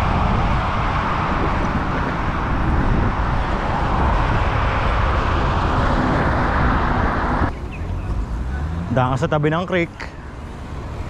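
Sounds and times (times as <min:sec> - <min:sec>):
wind buffeting microphone: 0:00.0 - 0:08.2
road traffic noise: 0:00.0 - 0:11.0.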